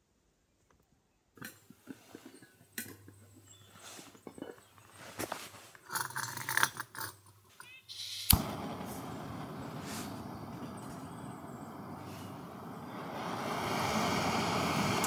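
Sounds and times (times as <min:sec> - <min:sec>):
gas hissing from valve: 0:07.9 - 0:15.0
burner flame running: 0:08.2 - 0:15.0
stove igniter click: 0:08.2 - 0:15.0.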